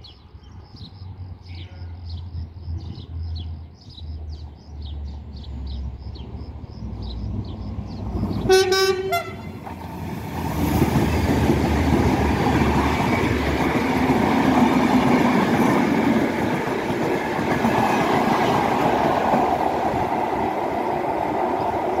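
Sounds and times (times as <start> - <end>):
diesel locomotive engine rumble: 0.2 - 22.0
carriages rolling on rails: 9.5 - 22.0.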